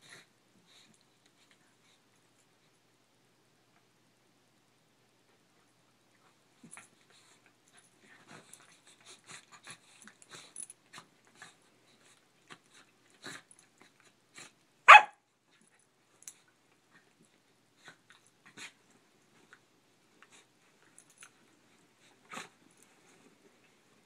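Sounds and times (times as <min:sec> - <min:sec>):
dog barking: 0:14.9 - 0:15.2.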